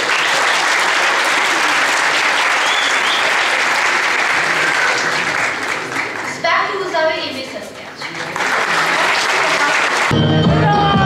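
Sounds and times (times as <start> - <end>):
crowd applauding: 0.0 - 6.9, 8.0 - 11.0.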